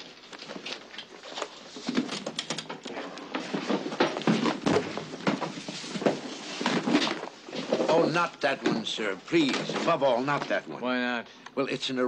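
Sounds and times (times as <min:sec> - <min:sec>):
hardcover books being stacked: 0:03.2 - 0:10.6.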